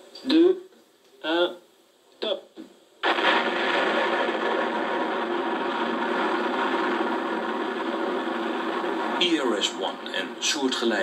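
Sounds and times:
rocket engines roaring: 3.0s - 11.0s.

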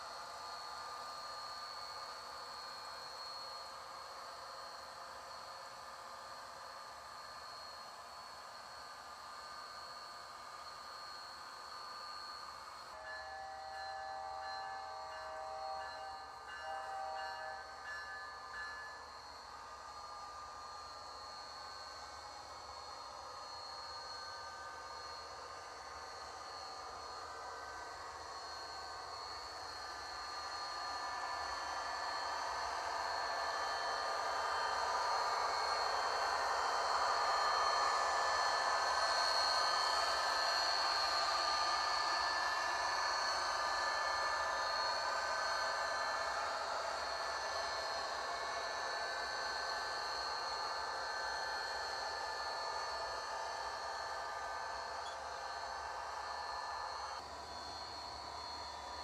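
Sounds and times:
model train running hum: 0.0s - 59.0s
model train horn tones: 13.0s - 18.8s.

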